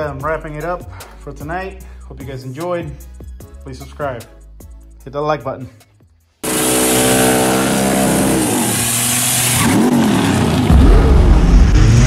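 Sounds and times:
loud hiss: 6.4s - 9.5s
car engine revving: 6.4s - 12.0s.

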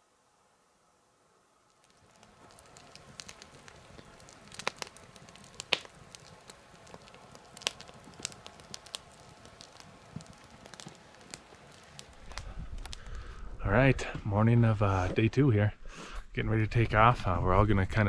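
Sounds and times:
crackling and snapping: 1.6s - 15.1s.

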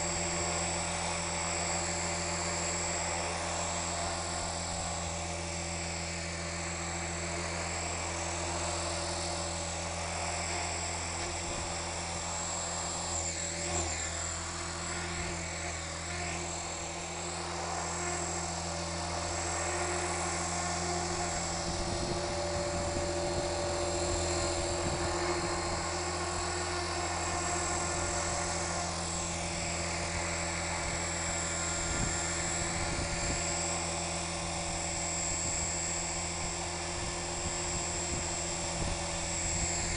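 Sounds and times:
motor and gear whine: 0.0s - 39.9s
rc helicopter rotor buzz: 0.0s - 39.9s.

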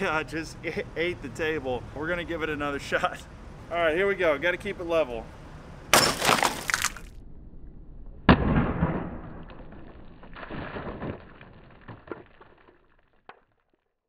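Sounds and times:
plastic bottles bursting: 6.0s - 7.1s.

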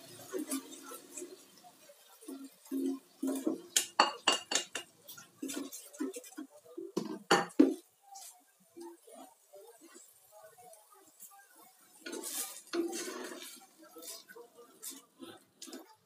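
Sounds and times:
utensil clinking in metal pot: 3.2s - 6.2s
utensil scraping a plate: 12.0s - 16.0s.

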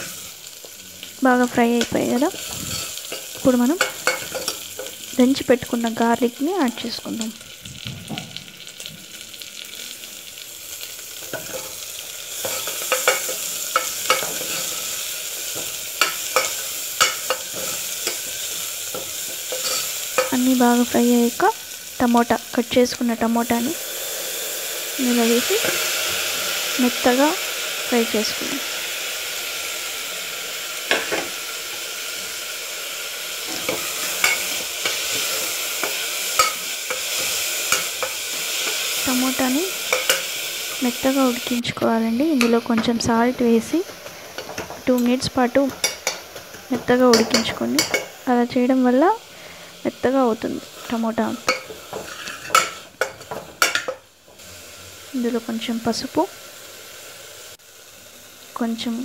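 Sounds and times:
food sizzling in hot oil: 0.0s - 59.0s
metal spoon clinking and scraping pot: 1.8s - 5.0s, 11.2s - 20.4s, 33.5s - 39.0s, 39.8s - 40.4s, 45.7s - 46.5s, 47.1s - 48.1s, 51.4s - 54.0s
spoon scraping a metal pot: 2.4s - 4.6s, 18.9s - 20.3s, 51.4s - 54.0s.

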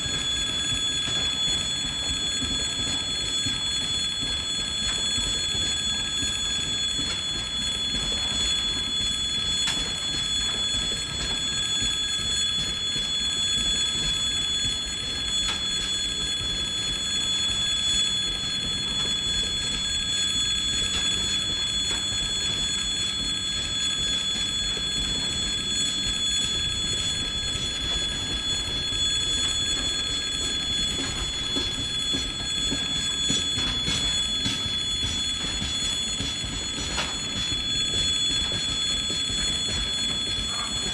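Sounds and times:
level crossing bell ringing: 25.0s - 40.9s.

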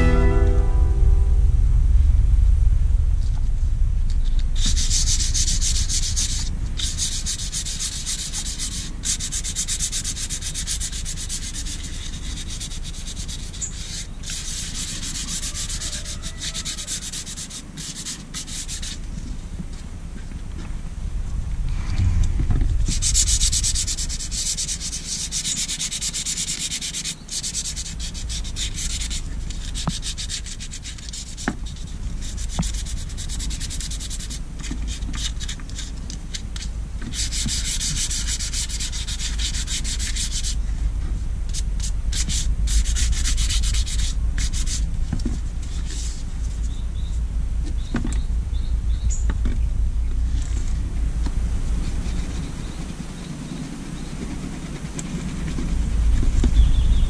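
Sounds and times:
low rumble: 0.0s - 7.3s, 19.2s - 25.4s, 40.6s - 57.0s
rubbing strokes on leather: 4.6s - 19.7s, 22.7s - 47.1s, 50.3s - 57.0s.

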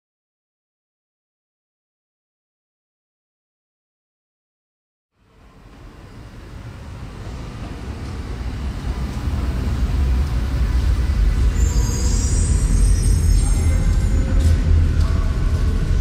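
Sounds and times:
train rumbling: 5.2s - 16.0s
high-pitched metallic squeal: 11.3s - 16.0s.

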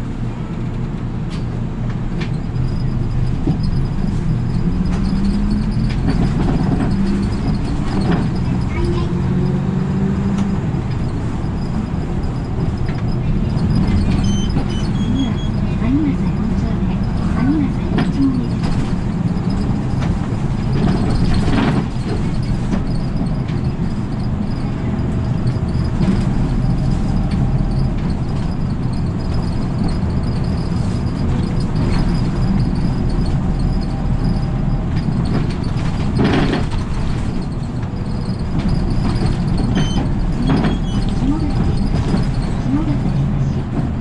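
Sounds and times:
bus engine drone and road noise: 0.0s - 44.0s
short knocks and rattles: 2.2s - 9.0s, 16.2s - 24.6s, 25.3s - 44.0s.

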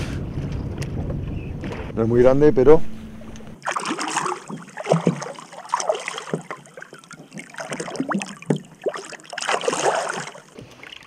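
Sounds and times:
water splashing against boat: 3.4s - 11.0s.

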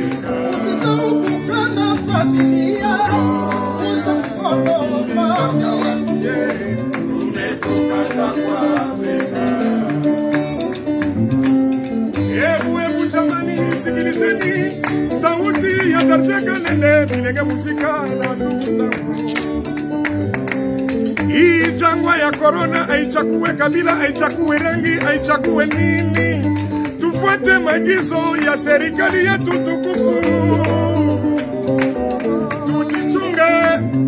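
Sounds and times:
several singers singing together: 0.0s - 10.3s, 12.2s - 16.3s, 28.8s - 34.0s
electric guitars: 0.0s - 34.0s.

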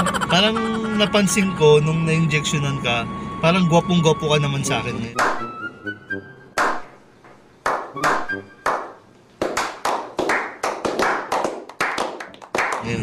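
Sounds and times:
group clapping: 5.2s - 5.5s, 6.6s - 6.9s, 7.6s - 13.0s.

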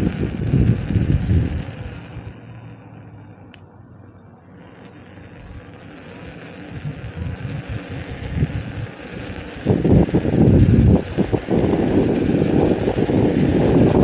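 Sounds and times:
wind buffeting microphone: 0.0s - 2.5s, 6.7s - 14.0s.

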